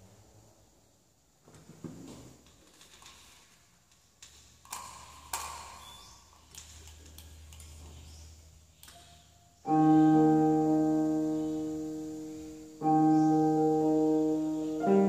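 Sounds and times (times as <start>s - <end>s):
piano-like keyboard chord: 9.7s - 15.0s.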